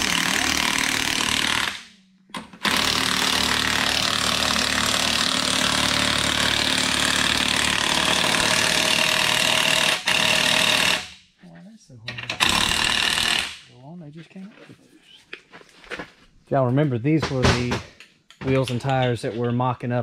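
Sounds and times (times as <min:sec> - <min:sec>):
air impact wrench rattling: 0:00.0 - 0:11.2, 0:12.2 - 0:13.7.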